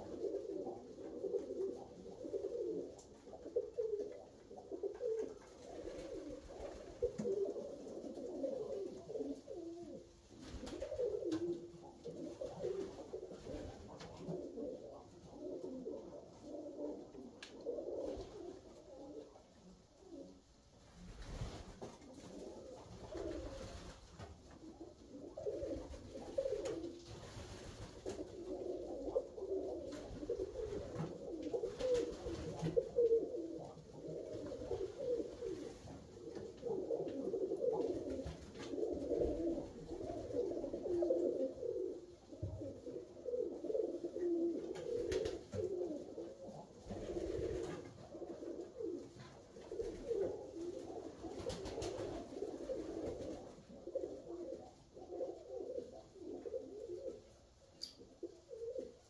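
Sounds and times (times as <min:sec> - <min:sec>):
pigeons cooing: 0:00.0 - 0:20.4, 0:21.9 - 0:59.0
faint clicks: 0:57.8 - 0:58.0.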